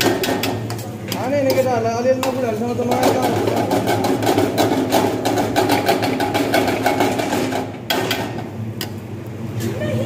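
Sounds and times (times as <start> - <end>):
ladle scraping and knocking wok: 0.0 - 8.3.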